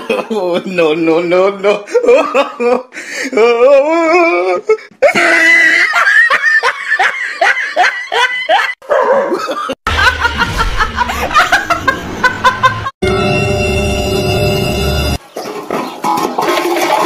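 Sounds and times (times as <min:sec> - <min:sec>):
hard laughter: 0:01.8 - 0:13.0
woman laughing: 0:05.0 - 0:13.0
low rumble: 0:09.9 - 0:14.2.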